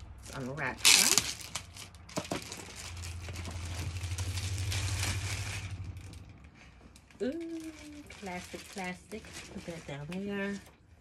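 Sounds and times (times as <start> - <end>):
plastic wrapping crinkling: 0.0 - 10.8.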